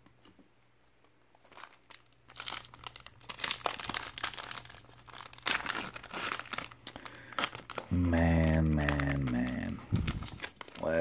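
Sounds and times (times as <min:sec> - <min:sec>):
foil wrapper crinkling: 0:01.2 - 0:11.0.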